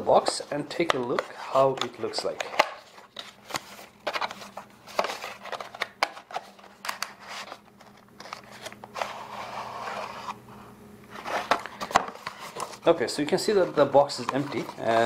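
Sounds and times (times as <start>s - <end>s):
cardboard rubbing: 0.2s - 10.4s, 11.1s - 15.0s.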